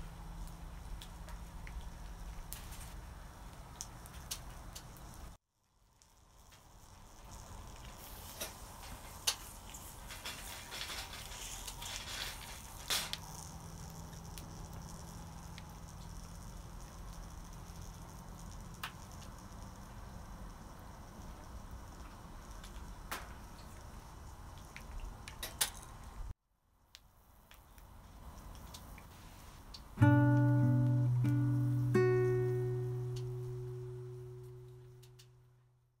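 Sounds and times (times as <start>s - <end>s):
shells sizzling and crackling: 0.3s - 26.1s
plucked acoustic guitar: 30.0s - 35.1s.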